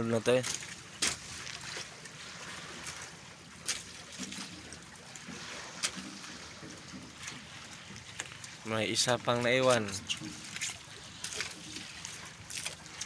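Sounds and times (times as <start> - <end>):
sea water washing around boat: 0.0 - 13.0
water trickling from net: 0.4 - 13.0.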